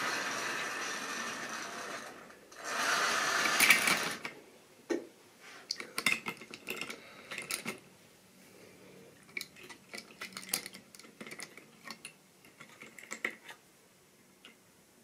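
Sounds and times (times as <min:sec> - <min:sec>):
toy train wheels clicking on rails: 0:00.0 - 0:04.3.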